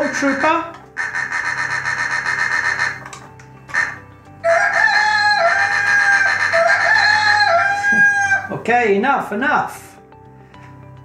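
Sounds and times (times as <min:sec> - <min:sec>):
rooster crowing sound effect: 0:03.8 - 0:08.5.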